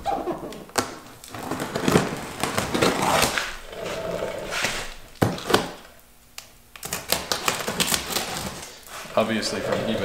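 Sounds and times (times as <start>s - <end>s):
paper and tape ripping: 1.2s - 3.6s, 6.8s - 9.1s
cardboard rustling and scraping: 1.2s - 5.8s, 7.2s - 10.0s.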